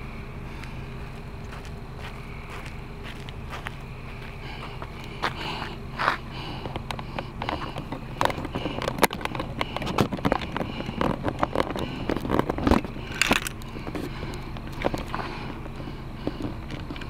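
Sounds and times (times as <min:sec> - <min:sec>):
steady low hum: 0:00.0 - 0:17.0
footsteps on pavement: 0:00.2 - 0:17.0
clicks and handling knocks: 0:06.6 - 0:17.0.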